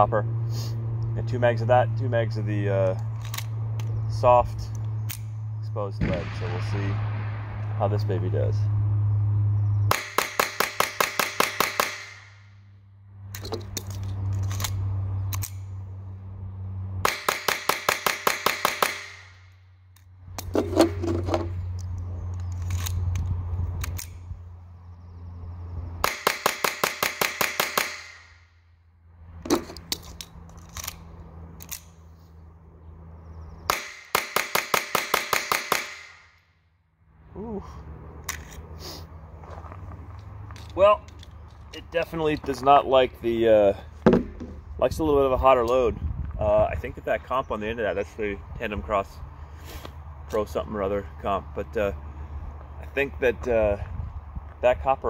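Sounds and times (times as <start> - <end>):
pistol shots rapid fire: 9.9 - 12.3, 26.0 - 28.2, 33.7 - 36.2
magazine change clicks: 13.3 - 15.7, 21.7 - 24.2, 29.8 - 32.0.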